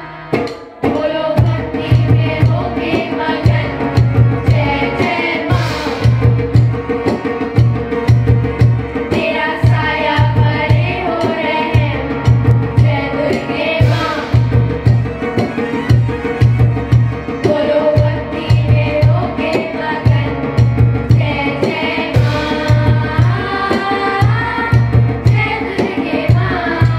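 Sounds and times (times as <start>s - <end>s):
children singing: 0.0s - 6.0s, 9.1s - 12.0s, 21.2s - 26.9s
steady drum beat: 0.0s - 26.9s.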